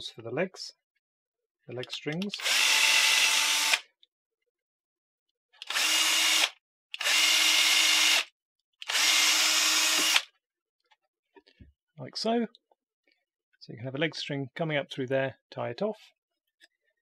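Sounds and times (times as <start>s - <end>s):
cordless drill boring into wood: 2.3s - 3.8s, 5.6s - 10.3s.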